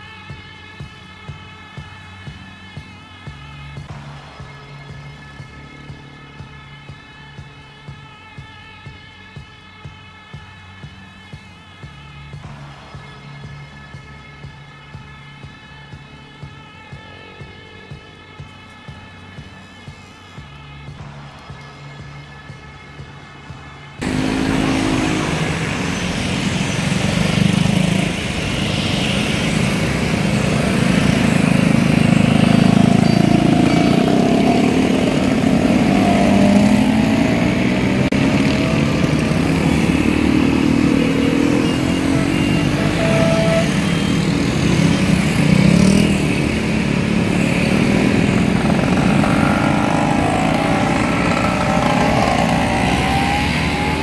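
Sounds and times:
scooters riding past: 24.0s - 54.0s.

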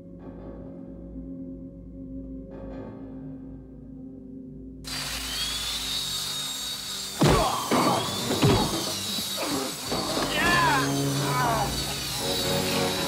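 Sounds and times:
spinning wheel high whine: 4.9s - 13.0s
men grunting: 7.2s - 8.8s, 9.4s - 12.0s
punches hitting: 7.2s - 8.9s.

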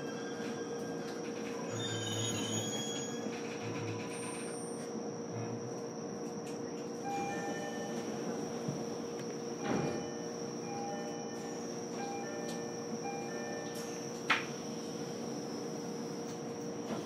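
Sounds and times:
train electrical hum: 0.0s - 17.0s
constant high whine: 2.7s - 17.0s.

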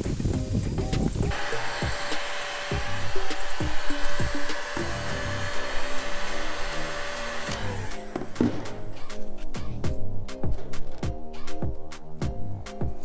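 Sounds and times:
heat gun blowing air: 0.0s - 9.0s
background music with a beat: 0.0s - 13.0s.

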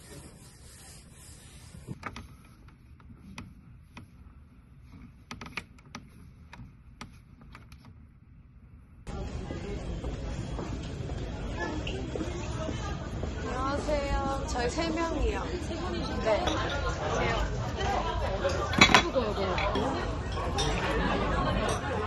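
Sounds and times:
wet wipe rubbing a desk: 0.0s - 7.4s
steady background noise: 0.0s - 22.0s.

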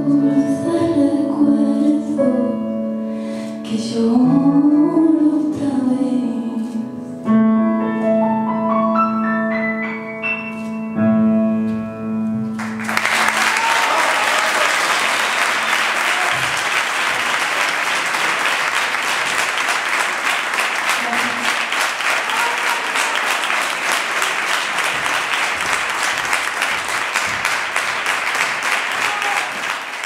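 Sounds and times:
grand piano playing: 0.0s - 13.2s
audience applause: 12.6s - 30.0s.

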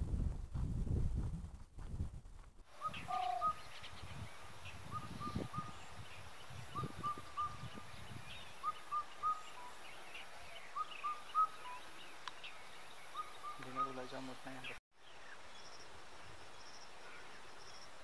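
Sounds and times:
wind rumbling on microphone: 0.0s - 13.5s
bird call of rising notes: 2.8s - 4.0s, 4.9s - 14.8s.

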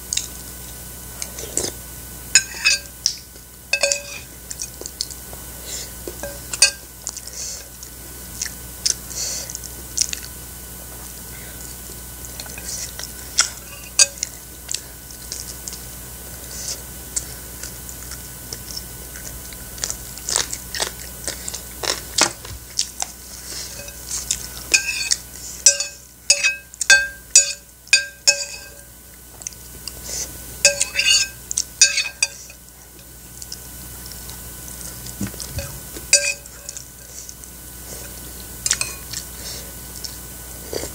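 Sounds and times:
spoon scraping ceramic plate: 2.4s - 2.9s, 3.8s - 4.3s, 23.6s - 24.1s, 24.7s - 28.8s, 30.7s - 32.6s, 35.6s - 36.8s
chewing and lip smacking: 7.0s - 10.4s, 17.1s - 23.2s, 31.5s - 31.7s, 33.0s - 35.6s.

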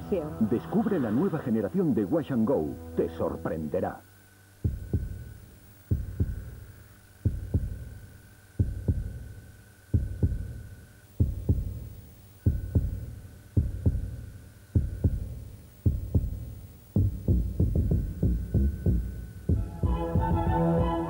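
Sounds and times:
heartbeat thumps: 4.6s - 21.0s.

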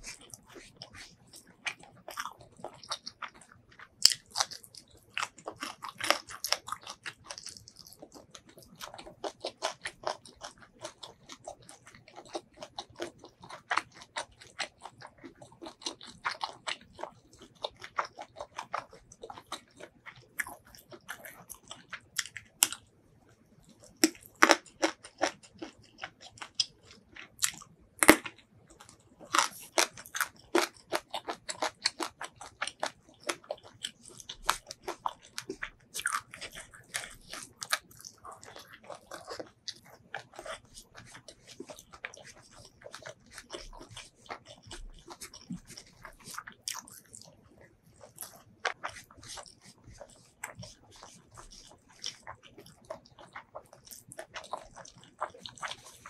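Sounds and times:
close chewing with wet mouth clicks: 0.0s - 56.0s.

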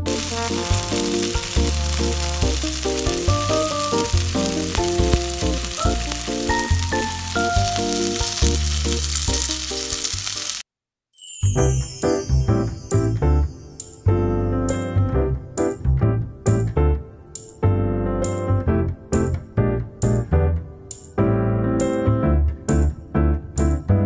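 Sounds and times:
background music: 0.0s - 10.6s, 11.4s - 24.0s
meat sizzling in a pan: 0.0s - 10.6s.

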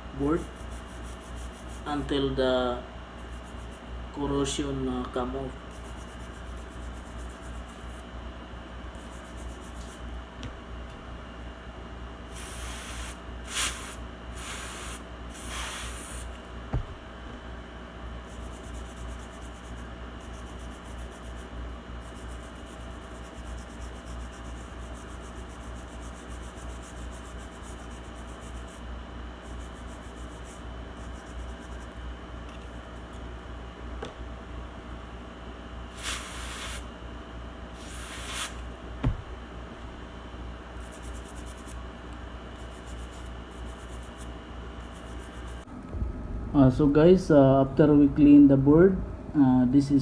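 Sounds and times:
small brush scrubbing circuit board: 0.2s - 2.2s, 3.2s - 3.9s, 5.2s - 8.1s, 8.9s - 10.1s, 12.3s - 16.4s, 18.2s - 33.2s, 35.9s - 36.8s, 37.8s - 38.6s, 40.8s - 41.8s, 42.6s - 45.7s
short hisses: 12.3s - 16.3s, 35.9s - 36.9s, 37.8s - 38.6s.

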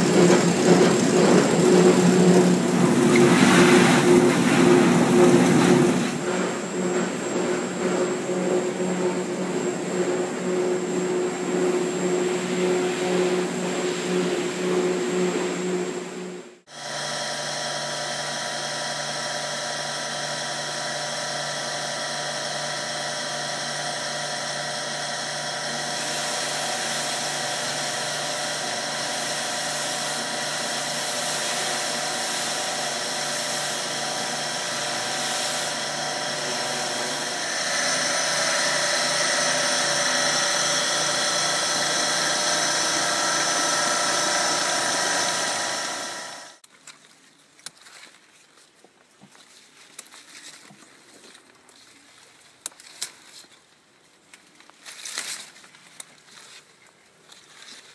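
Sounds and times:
wine press motor whining: 16.7s - 46.6s.

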